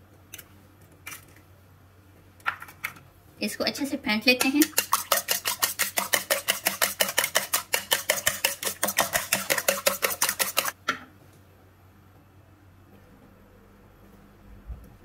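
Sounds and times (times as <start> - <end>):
utensil beating eggs in bowl: 4.2 - 10.8.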